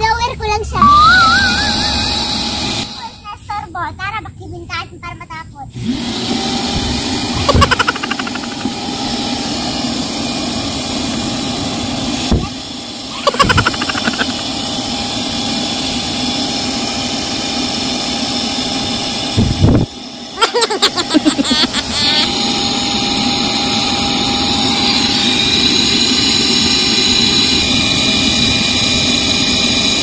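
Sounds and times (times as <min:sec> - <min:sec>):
warbling pitched sound: 0:00.8 - 0:02.7, 0:07.4 - 0:08.8, 0:13.2 - 0:14.4.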